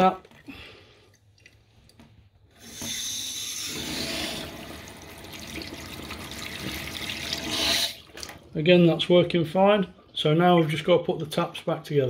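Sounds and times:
tap water running into sink: 0:01.4 - 0:08.5.

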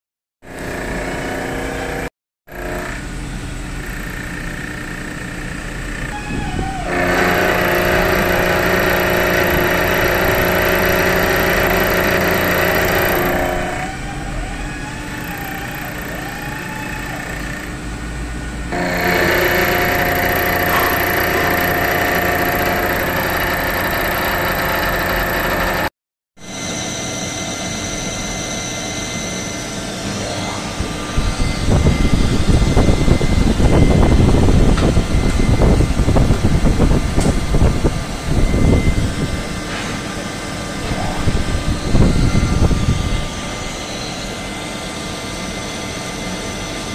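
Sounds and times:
milling machine motor hum: 0:00.4 - 0:25.9
lathe turning a steel bar: 0:00.5 - 0:06.2, 0:06.8 - 0:14.3, 0:18.7 - 0:25.9
end mill cutting steel: 0:00.5 - 0:25.9.

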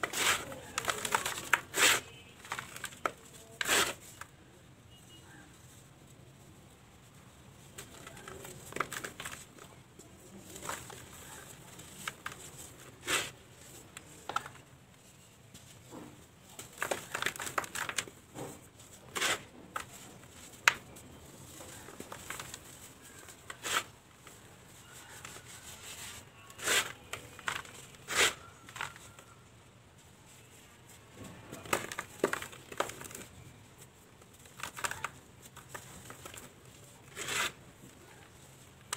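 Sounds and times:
cement crumbling by hand: 0:00.0 - 0:04.2, 0:07.8 - 0:09.7, 0:16.4 - 0:24.4, 0:31.4 - 0:33.5.

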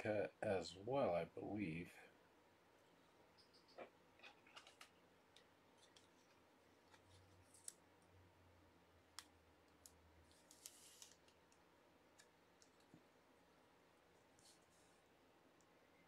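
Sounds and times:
soft rustle of cards: 0:02.8 - 0:08.2, 0:09.1 - 0:16.0.

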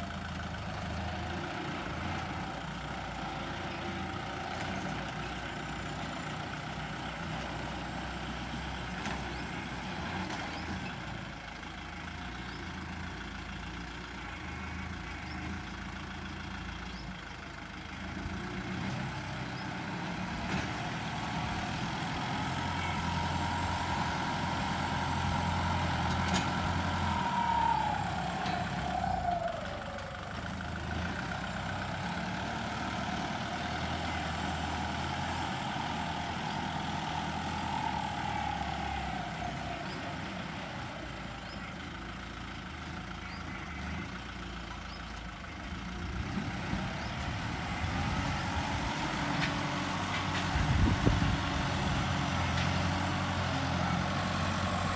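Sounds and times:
tractor diesel engine under load: 0:00.0 - 0:54.9
high engine whine: 0:20.4 - 0:30.8, 0:33.4 - 0:41.9, 0:46.0 - 0:54.9.

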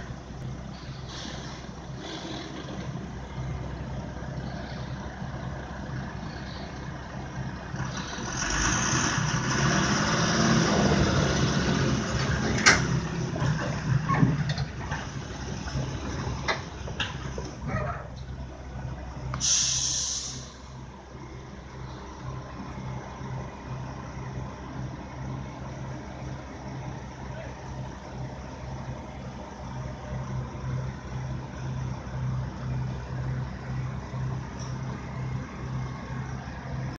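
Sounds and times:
diesel engine throbbing: 0:00.0 - 0:37.0
short loud hiss: 0:19.4 - 0:20.6.

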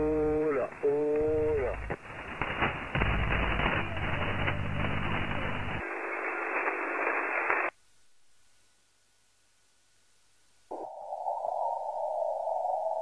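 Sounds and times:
radio static hiss: 0:00.0 - 0:08.7.

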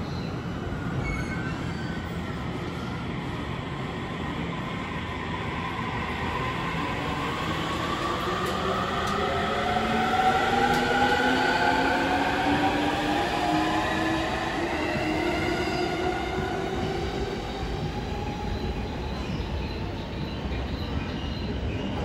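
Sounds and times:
train wheels rumbling on rails: 0:05.5 - 0:22.0.

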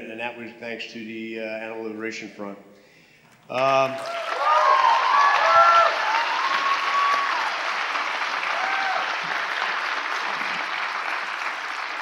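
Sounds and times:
audience applauding: 0:03.6 - 0:12.0
people cheering: 0:03.8 - 0:12.0.

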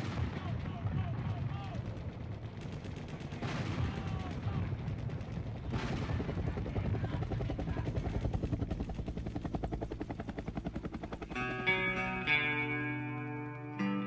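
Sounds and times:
helicopter rotor beating: 0:01.5 - 0:13.6
guitar music: 0:11.2 - 0:14.0.

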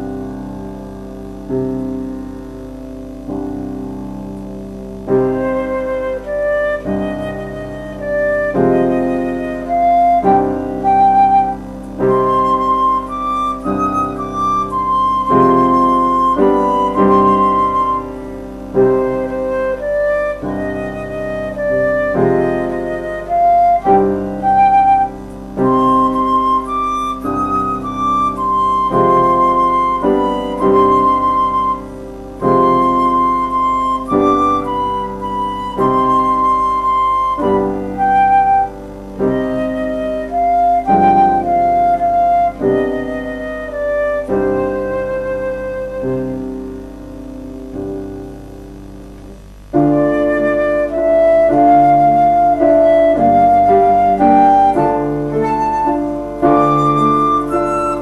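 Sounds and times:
instrumental background music: 0:00.0 - 0:58.0.

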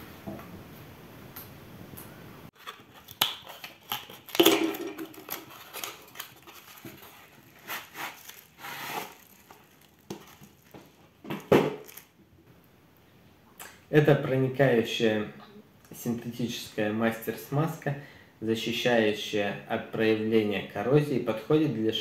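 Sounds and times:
plastic wrap crinkling: 0:02.6 - 0:12.2
cardboard and can knocks: 0:04.3 - 0:05.4, 0:11.2 - 0:11.9.

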